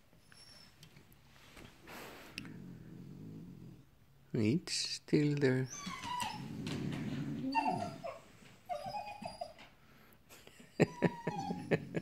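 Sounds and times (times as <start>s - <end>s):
dogs whining: 5.7s - 9.8s, 10.8s - 12.0s.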